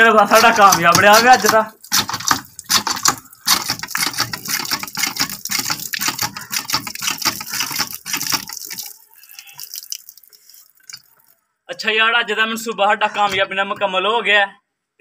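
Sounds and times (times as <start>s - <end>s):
hand pump squeaking: 0.0s - 9.9s
water gushing from spout: 0.3s - 11.2s.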